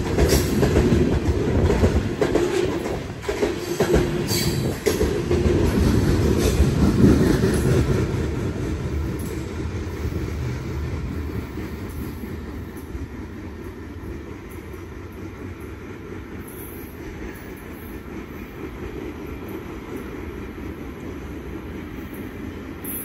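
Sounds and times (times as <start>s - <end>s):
freight train rumbling: 0.0s - 23.0s.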